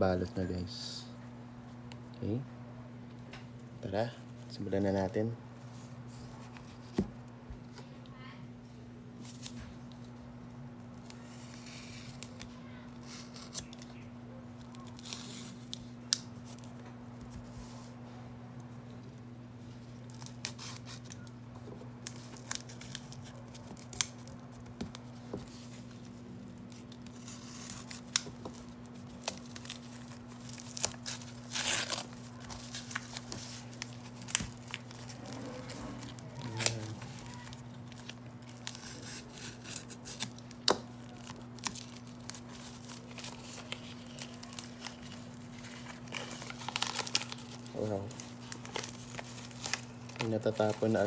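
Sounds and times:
steady low hum: 0.0s - 51.0s
paper tearing and crinkling: 11.0s - 13.8s, 14.6s - 16.8s, 20.0s - 21.2s, 22.0s - 51.0s.

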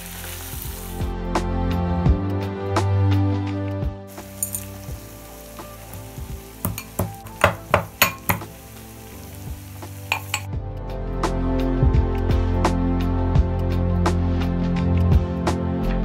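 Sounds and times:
background music: 0.0s - 16.0s
pestle striking metal mortar: 6.6s - 8.5s.

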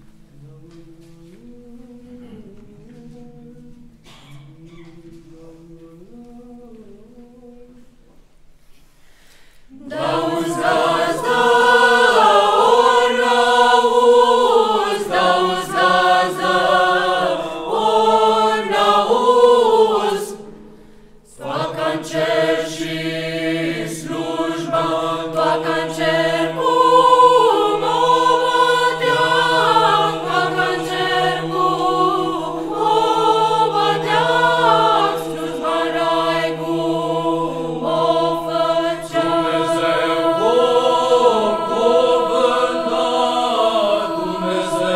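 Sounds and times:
mixed choir singing a cappella: 9.7s - 44.9s.

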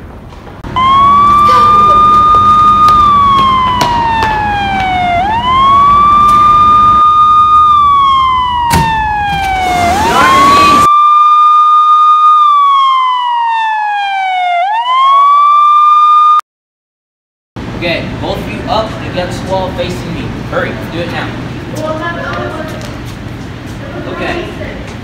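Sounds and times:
police siren wailing: 0.6s - 16.4s.

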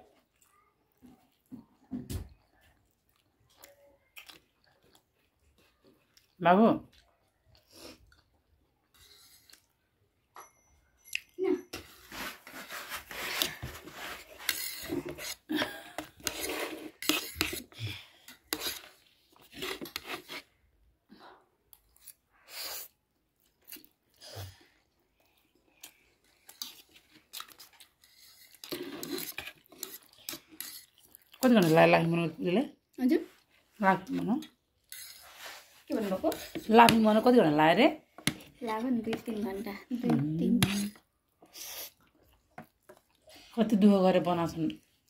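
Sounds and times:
cutlery scraping and clinking plates: 11.8s - 17.7s, 28.0s - 31.0s, 34.9s - 37.1s, 40.5s - 41.0s.

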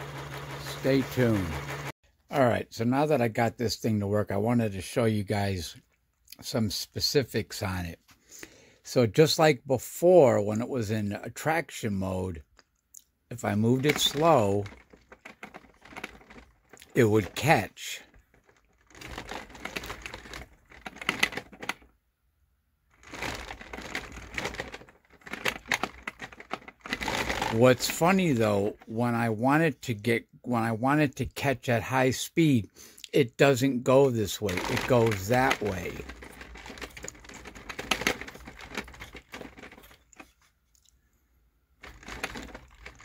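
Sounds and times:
motor rotor rattling and clicking: 0.0s - 1.9s, 13.6s - 21.9s, 22.9s - 28.9s, 34.3s - 40.4s, 41.8s - 43.0s.

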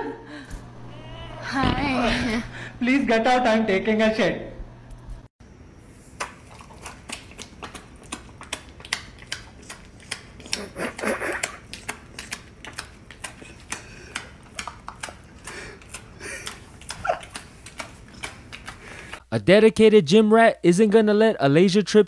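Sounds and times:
low background hum: 0.0s - 22.0s.

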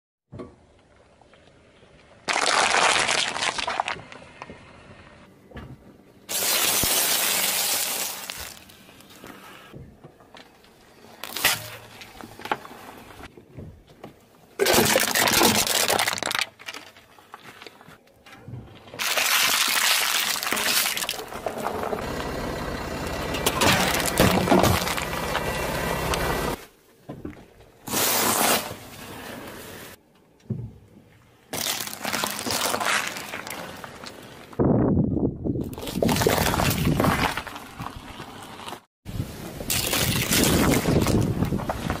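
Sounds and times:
drink cans crushed flat: 14.6s - 17.0s
tyre crushing objects: 23.5s - 25.5s.

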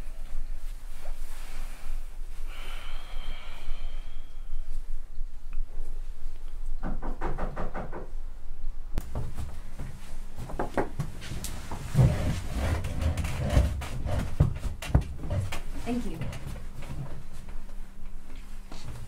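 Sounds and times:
knocks and clatters at a table: 6.8s - 8.1s, 10.4s - 11.0s, 13.1s - 15.7s.

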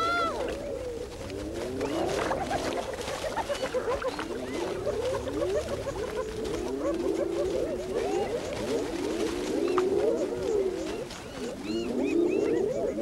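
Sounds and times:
hyenas calling: 0.0s - 13.0s.

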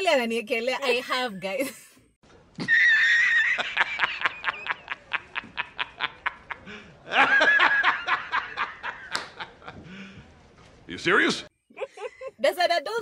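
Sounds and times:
high-pitched laughter: 2.6s - 8.9s.

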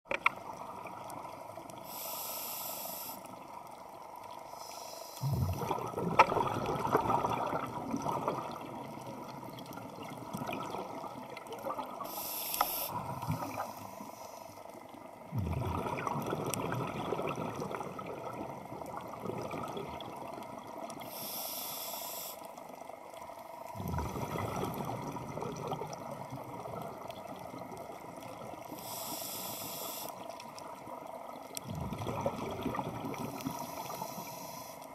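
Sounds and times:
regulator inhalation hiss: 1.8s - 3.4s, 4.5s - 5.4s, 12.0s - 14.6s, 21.0s - 22.5s, 28.7s - 30.3s, 33.3s - 34.9s
exhaled bubbles rushing: 5.2s - 12.0s, 15.1s - 20.9s, 23.7s - 28.7s, 31.5s - 33.9s.

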